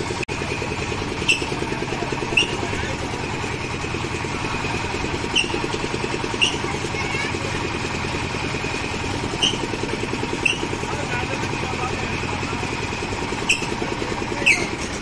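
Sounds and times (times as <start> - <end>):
small engine puttering: 0.0 - 15.0
short high squeaks: 1.1 - 2.8, 5.2 - 6.9, 9.2 - 10.9, 13.3 - 15.0.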